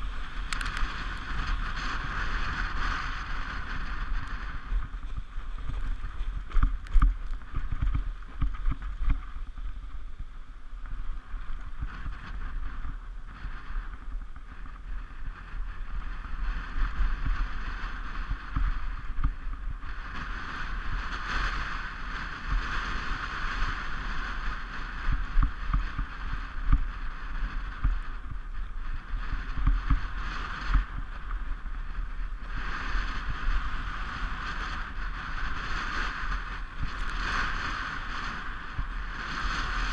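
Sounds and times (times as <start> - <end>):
sled runners hissing on snow: 14.9 - 39.9.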